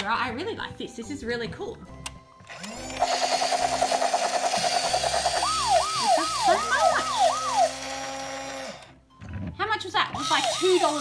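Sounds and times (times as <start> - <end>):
toy siren: 5.0 - 8.2, 10.2 - 11.0.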